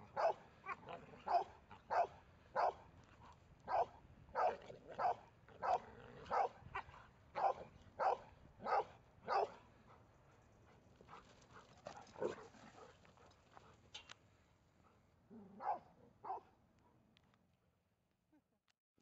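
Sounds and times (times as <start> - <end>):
dog barking: 0.0 - 2.9, 3.7 - 9.6, 15.5 - 16.5.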